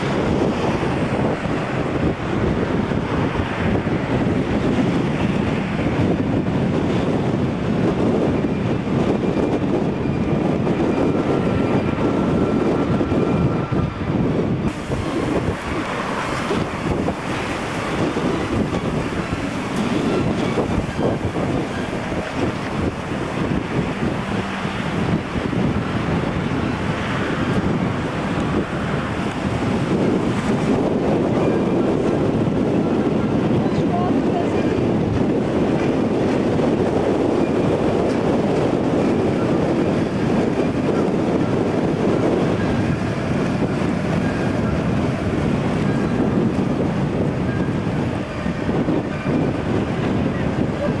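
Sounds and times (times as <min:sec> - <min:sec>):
rushing water: 0:00.0 - 0:51.0
wind buffeting microphone: 0:00.0 - 0:51.0.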